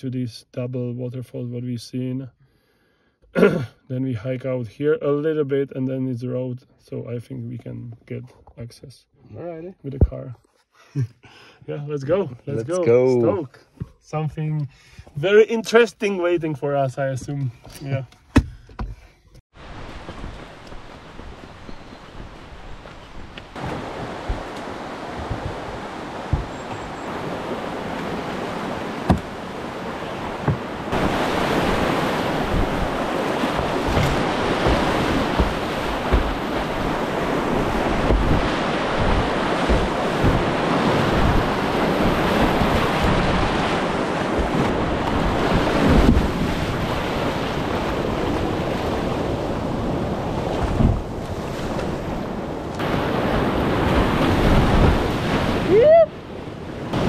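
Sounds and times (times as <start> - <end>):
wind buffeting microphone: 19.6 - 57.0
whitewater river rushing: 23.5 - 49.6, 52.8 - 56.1.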